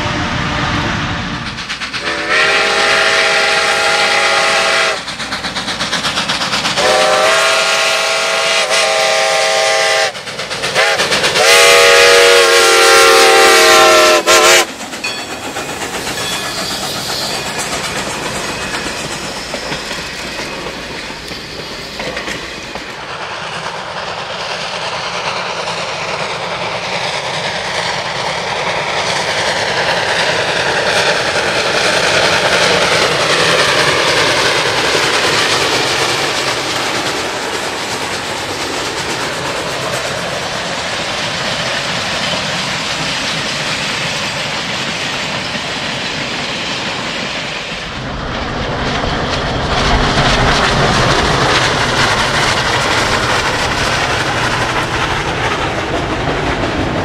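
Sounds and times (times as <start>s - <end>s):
train wheels clacking on rail joints: 1.4s - 47.9s, 48.7s - 57.0s
steam locomotive whistle blasts: 2.0s - 5.1s, 6.8s - 10.2s, 10.8s - 14.7s.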